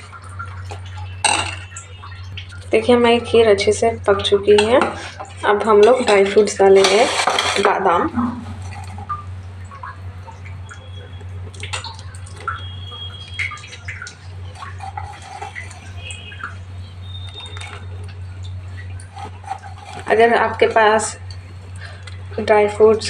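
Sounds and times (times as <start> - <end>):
steady low hum: 0.0 - 23.0
metal spoon stirring thick liquid: 4.4 - 9.2, 13.6 - 21.4.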